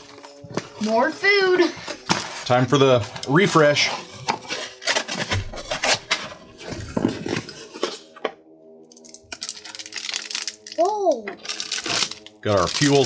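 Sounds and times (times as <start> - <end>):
cardboard box scraping and rustling: 2.1 - 8.1.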